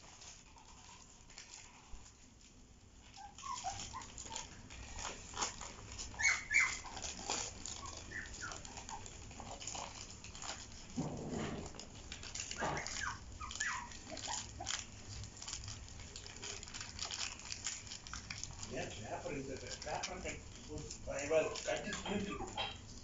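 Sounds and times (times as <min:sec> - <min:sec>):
newspaper crinkling: 0:00.0 - 0:23.0
puppies whimpering and yipping: 0:03.0 - 0:10.8, 0:11.6 - 0:15.6, 0:21.3 - 0:22.8.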